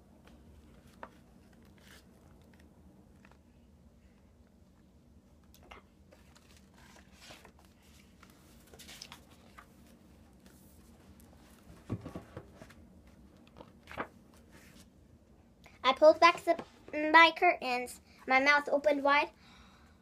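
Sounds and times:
paper pages rustling: 0.3s - 3.4s, 6.1s - 14.9s.

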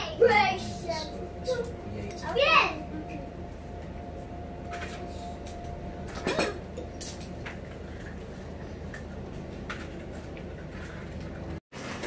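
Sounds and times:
steady low hum: 0.0s - 11.6s.

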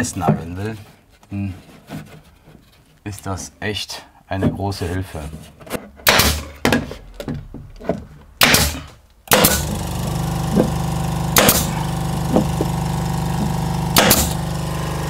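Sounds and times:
nail gun shots: 6.0s - 6.7s, 8.4s - 10.7s, 11.4s - 12.8s, 13.9s - 14.4s
air compressor running: 8.4s - 15.0s.

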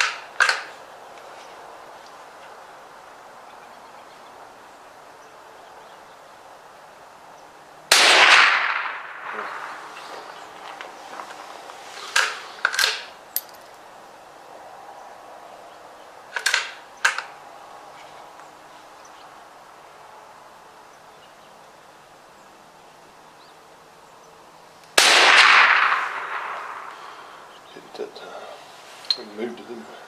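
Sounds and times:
rifle shots: 7.9s - 10.0s, 25.0s - 27.3s.

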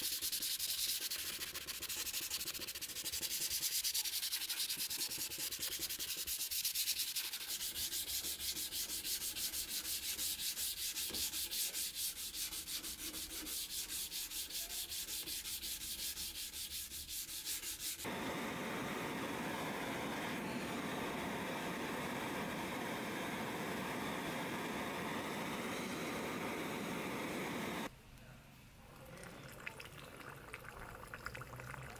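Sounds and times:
sandpaper rubbing steel blade: 0.0s - 18.1s.

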